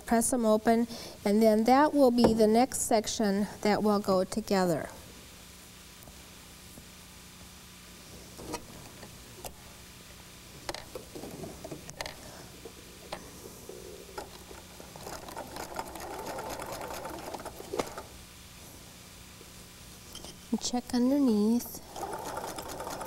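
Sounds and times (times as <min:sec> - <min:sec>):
sewing machine stitching: 0:15.0 - 0:18.1, 0:21.8 - 0:23.0.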